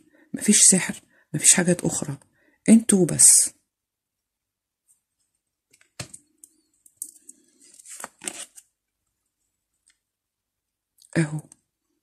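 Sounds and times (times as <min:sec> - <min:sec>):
cards clicking and rustling: 0:07.0 - 0:08.7.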